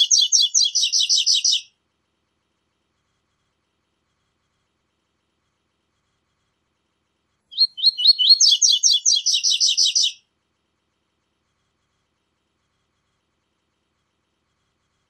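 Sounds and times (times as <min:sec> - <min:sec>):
songbird singing high notes: 0:00.0 - 0:01.6, 0:07.5 - 0:10.2.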